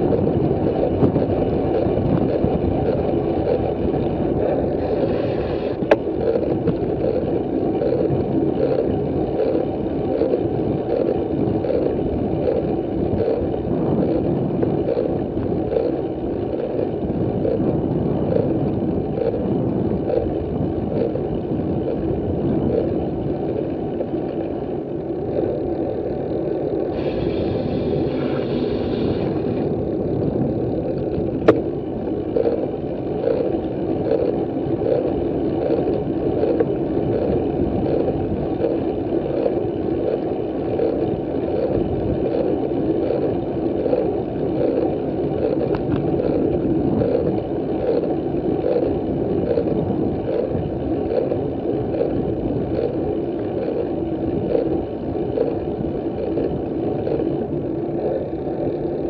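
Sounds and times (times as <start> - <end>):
bicycle tyre noise: 0.0 - 59.0
wind buffeting microphone: 0.0 - 59.0
faint regular pulse: 25.3 - 40.2.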